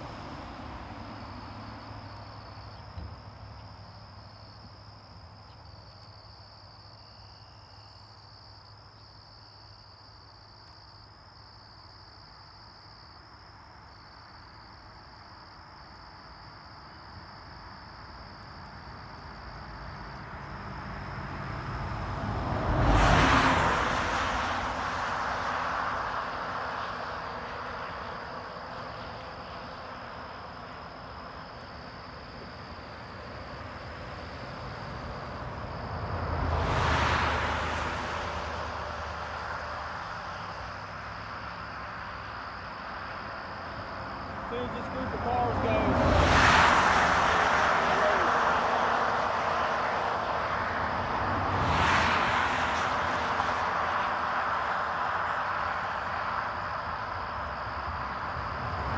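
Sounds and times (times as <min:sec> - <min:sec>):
van passing by: 0:00.0 - 0:08.6, 0:17.2 - 0:58.9
truck passing by: 0:18.6 - 0:58.9
insects trilling: 0:37.8 - 0:51.4.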